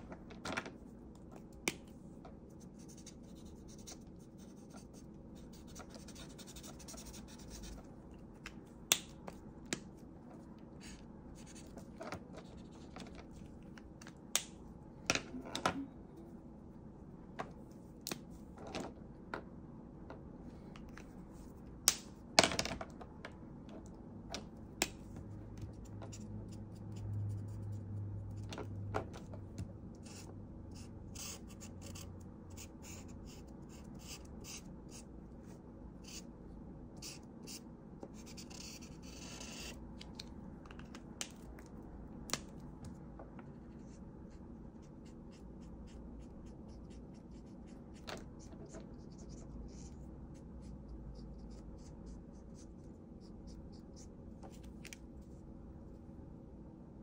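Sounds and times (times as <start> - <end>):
markers scratching across paper: 2.5 - 7.9, 30.0 - 35.0, 38.2 - 39.8.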